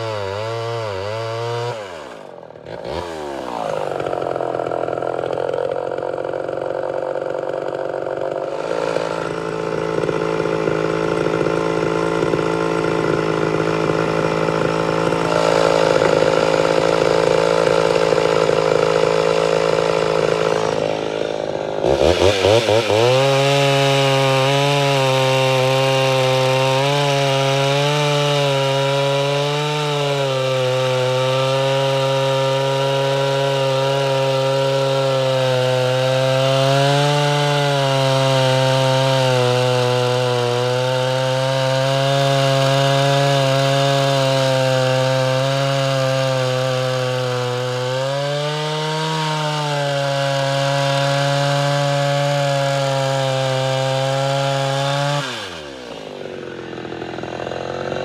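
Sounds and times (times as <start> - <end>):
chainsaw cutting through log: 0.0 - 58.0.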